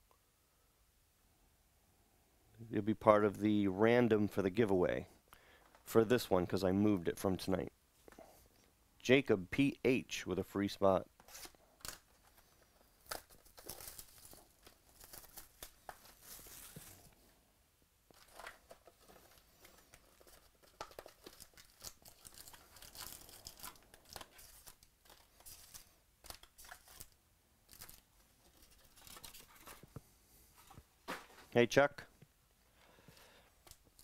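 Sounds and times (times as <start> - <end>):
cardboard and paper rustling: 11.2 - 17.2, 18.1 - 27.1, 27.7 - 31.6.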